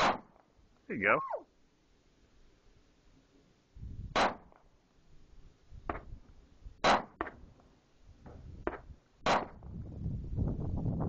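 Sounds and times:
pistol shots: 4.2 - 4.5.

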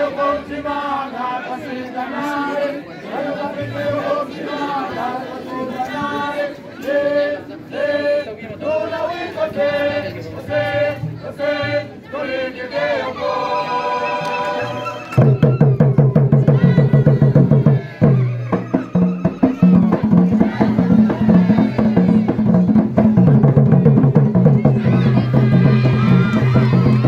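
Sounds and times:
voices singing a short phrase: 0.0 - 27.0
wooden hand drums beating: 15.2 - 27.0.

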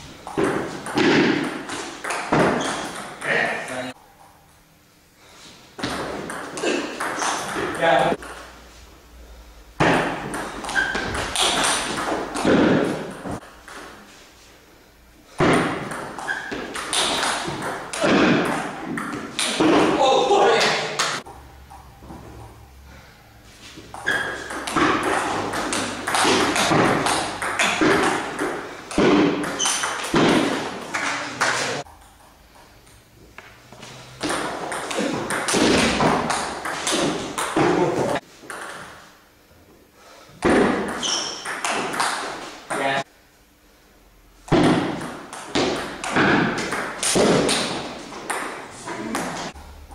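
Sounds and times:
table tennis ball knocking: 0.2 - 3.4, 15.4 - 20.0, 23.9 - 31.1.

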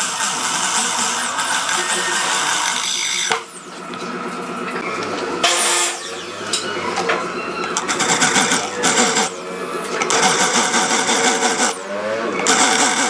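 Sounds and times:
drill bit grinding into metal pipe: 0.0 - 3.7, 5.4 - 6.7, 7.8 - 9.4, 10.0 - 13.0.

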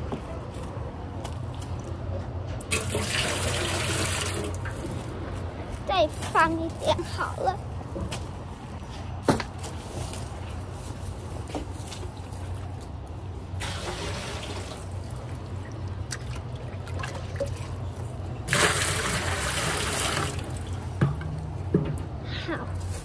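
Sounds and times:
water pouring into metal basin: 2.7 - 4.7, 13.6 - 20.7.

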